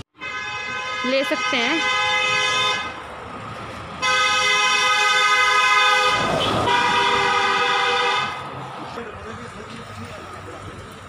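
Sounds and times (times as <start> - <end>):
vehicle horn blasts: 0.1 - 3.0, 4.0 - 8.4.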